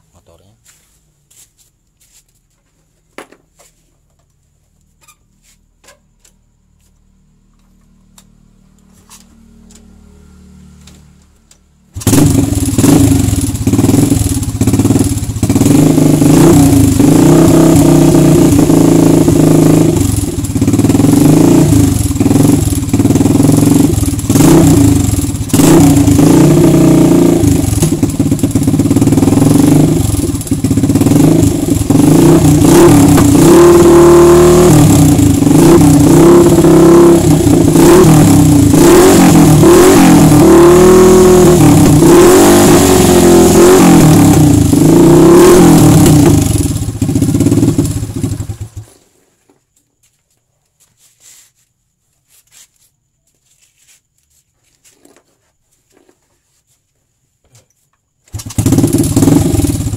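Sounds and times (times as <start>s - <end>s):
motorcycle engine revving: 6.8s - 49.2s, 58.2s - 59.9s.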